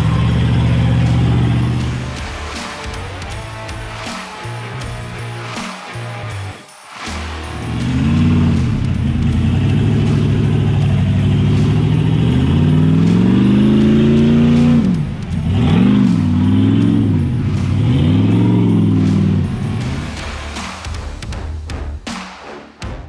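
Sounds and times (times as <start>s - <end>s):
engine revving hard: 0.0s - 4.2s, 7.1s - 20.7s.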